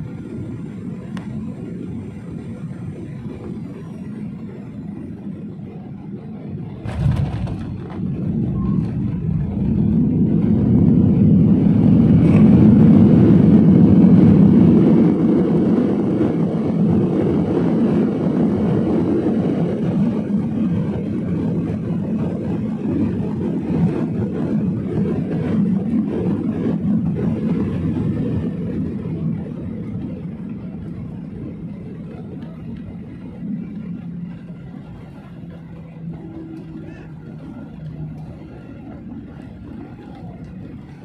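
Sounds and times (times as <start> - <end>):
jet engines low rumble: 0.0 - 41.0
airliner cabin jolt: 6.8 - 10.7.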